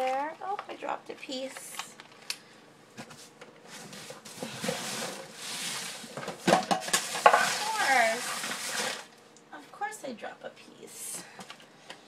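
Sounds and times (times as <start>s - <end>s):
rustling and shuffling: 2.9s - 9.0s.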